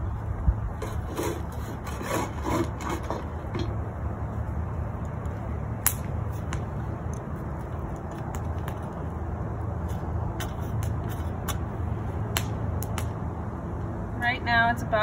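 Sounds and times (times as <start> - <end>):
metal shovel scraping coals: 0.8 - 3.8.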